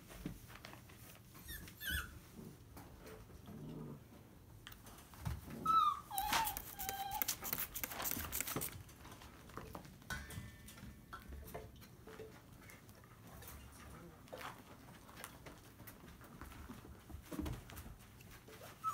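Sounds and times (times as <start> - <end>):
puppy yelping and whimpering: 1.4 - 2.2, 5.6 - 7.6
puppies scuffling: 5.0 - 18.9
spray bottle squirts: 6.5 - 8.7.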